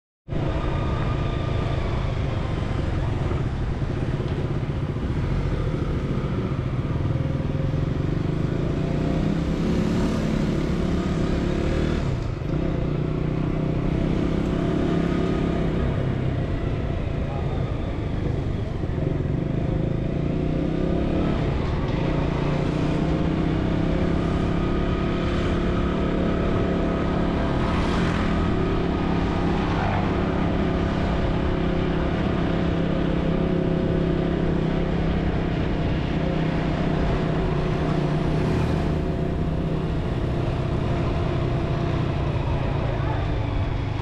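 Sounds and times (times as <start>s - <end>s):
road noise: 0.3s - 44.0s.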